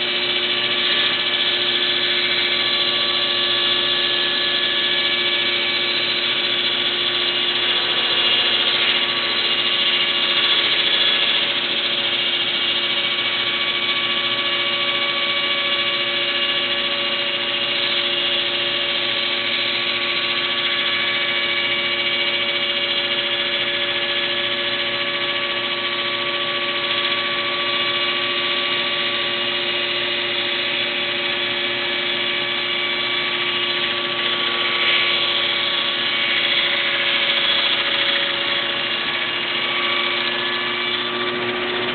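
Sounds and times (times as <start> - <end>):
circular saw whining: 0.0 - 41.9.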